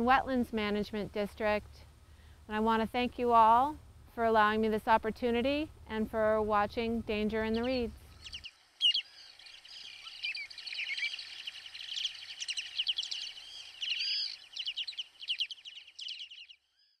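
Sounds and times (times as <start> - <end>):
faint steady hiss: 0.0 - 16.4
birds chirping and trilling: 6.0 - 17.0.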